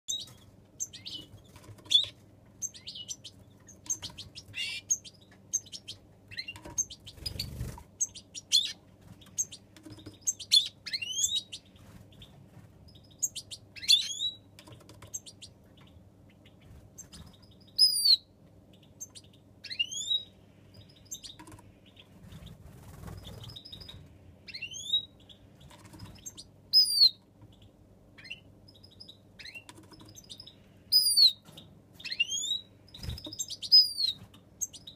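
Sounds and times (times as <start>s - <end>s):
finches chirping: 0.1s - 34.9s
wings fluttering: 7.0s - 8.0s, 21.4s - 24.0s, 32.9s - 34.3s.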